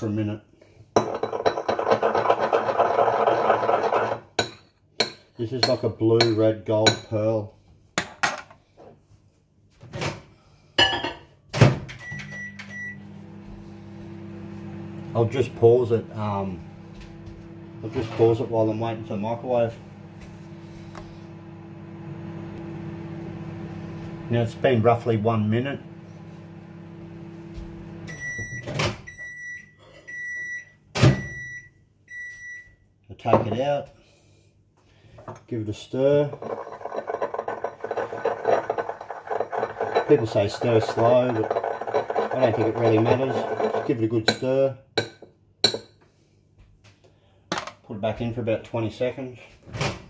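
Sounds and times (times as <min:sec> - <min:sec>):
microwave humming: 0:11.9 - 0:29.6.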